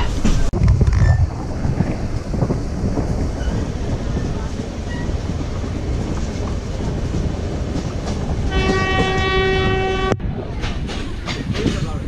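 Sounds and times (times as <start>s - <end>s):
train rumbling along track: 0.0s - 12.0s
train horn: 8.5s - 10.2s.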